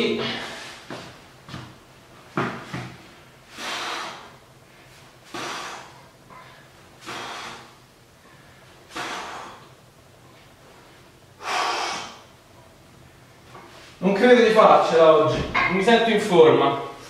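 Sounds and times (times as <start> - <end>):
man breathing hard under effort: 3.5 - 4.4, 5.3 - 9.8, 11.4 - 12.3.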